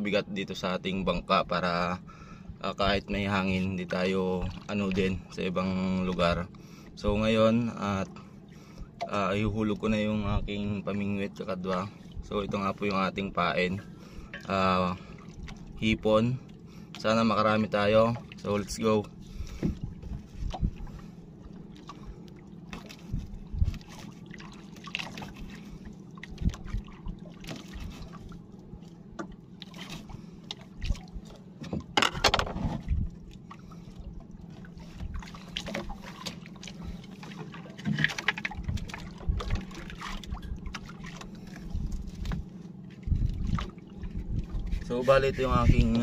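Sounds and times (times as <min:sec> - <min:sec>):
water lapping against boat hull: 0:00.0 - 0:46.0
knocks from boat and gear: 0:31.6 - 0:32.9.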